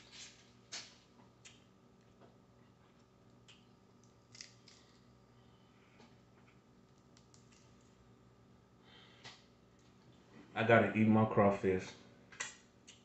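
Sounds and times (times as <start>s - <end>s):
low steady hum: 0.0s - 13.0s
shells clicking and crackling: 6.9s - 7.9s.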